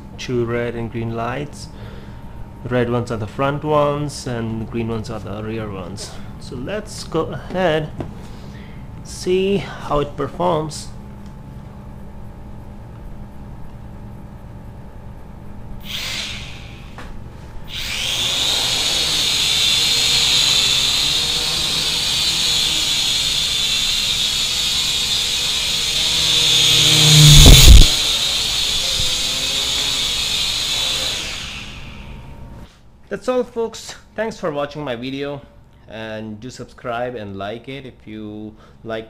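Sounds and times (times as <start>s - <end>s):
toy drone propellers whirring: 15.8s - 16.8s, 17.7s - 32.2s
loud thump: 26.2s - 28.1s.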